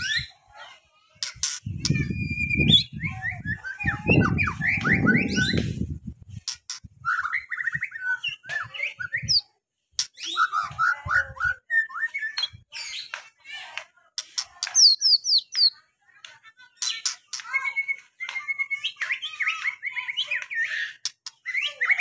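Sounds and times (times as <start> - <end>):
bird singing whistles and trills: 1.7 - 5.6, 7.0 - 9.5, 10.2 - 13.2, 14.8 - 15.8.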